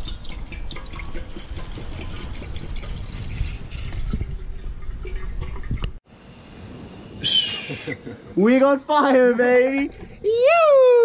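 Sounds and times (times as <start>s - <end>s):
water pouring into a kettle: 0.0s - 5.9s.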